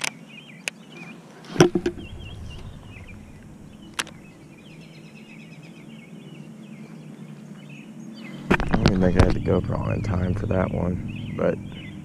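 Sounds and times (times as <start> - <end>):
birds chirping: 0.0 - 12.0.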